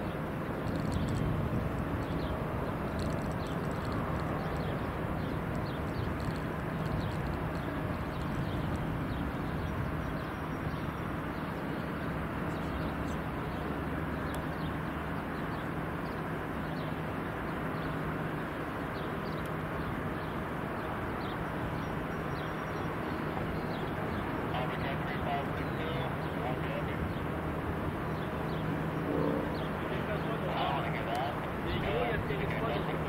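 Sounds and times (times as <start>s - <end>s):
distant machine rumble: 0.0s - 33.0s
high falling bird chirps: 27.0s - 31.6s.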